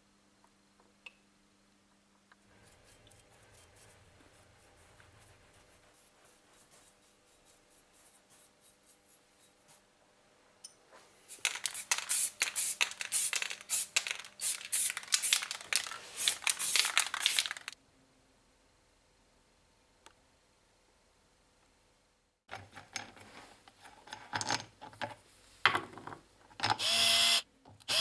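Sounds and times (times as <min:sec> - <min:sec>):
paintbrush strokes on metal: 0:02.5 - 0:09.9
spray can hissing: 0:11.3 - 0:17.8.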